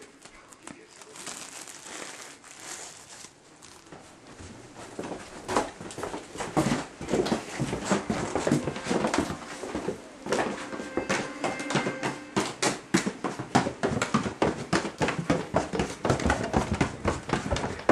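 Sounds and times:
rustling and handling noise: 0.0 - 17.9
footsteps on wooden floor: 3.8 - 17.9.

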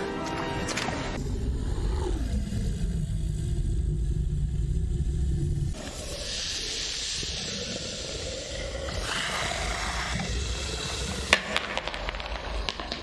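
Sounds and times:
giant serpent hissing and roaring: 1.2 - 11.5.

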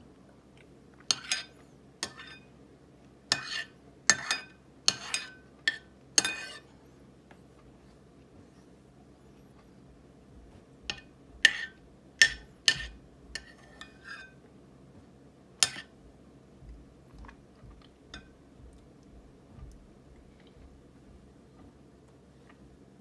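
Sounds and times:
metal spoon scraping ceramic bowl: 3.3 - 6.7, 10.9 - 14.4.

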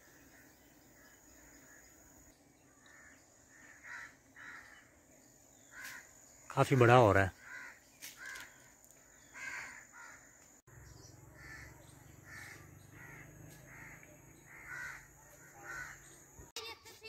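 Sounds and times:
crow cawing: 2.7 - 4.9, 5.6 - 6.2, 7.3 - 10.5, 11.3 - 16.1.

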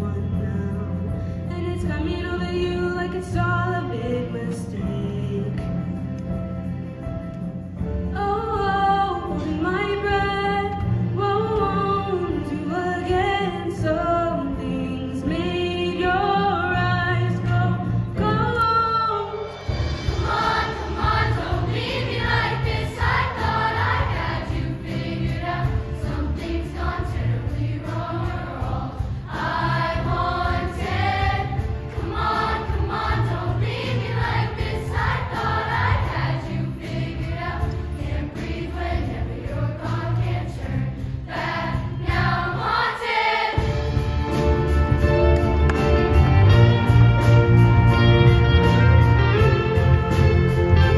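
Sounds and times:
instrumental accompaniment: 0.1 - 50.9
choir singing: 20.0 - 44.1.

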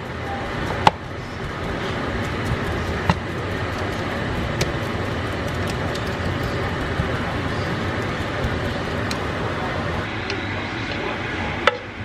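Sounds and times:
spatula tapping pan: 0.7 - 9.2.

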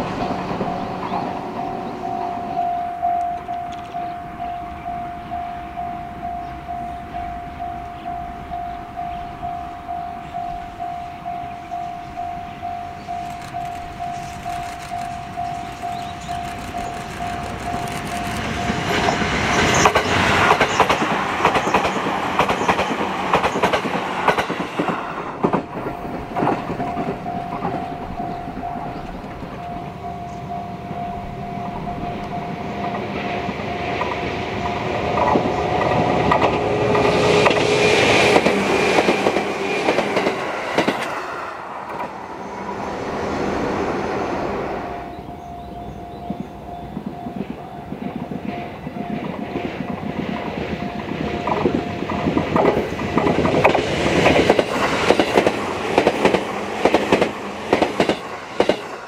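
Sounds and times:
level crossing bell ringing: 0.0 - 14.2, 25.9 - 34.1
train wheels clattering over rail joints: 13.0 - 29.9, 32.2 - 42.2, 46.2 - 59.0.

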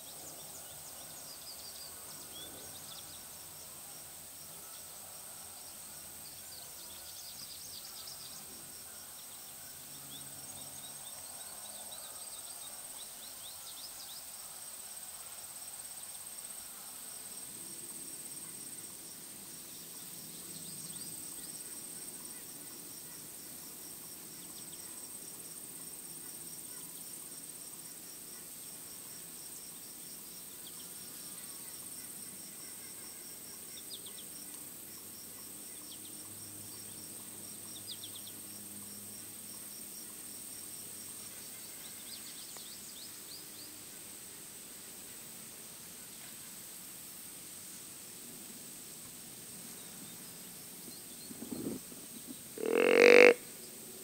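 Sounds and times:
insects droning and ticking: 0.0 - 54.0.

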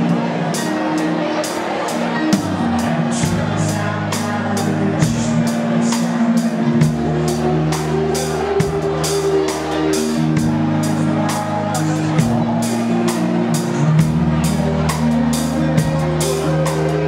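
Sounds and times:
bass notes: 0.0 - 17.0
live band playing: 0.0 - 17.0
drum beat: 2.3 - 15.1.

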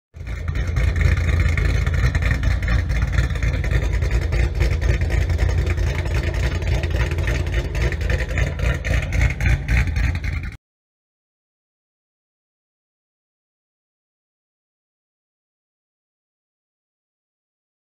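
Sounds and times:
engine low rumble: 0.2 - 10.6.

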